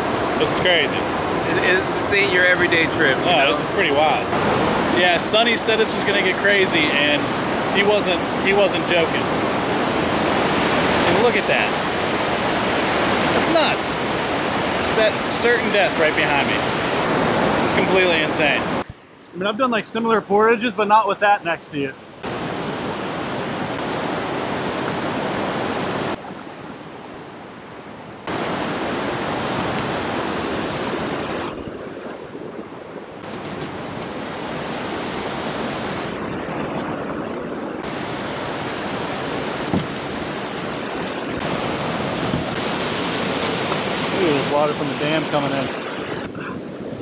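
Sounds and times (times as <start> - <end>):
whitewater roaring from spillway: 0.0 - 18.8, 33.2 - 46.3.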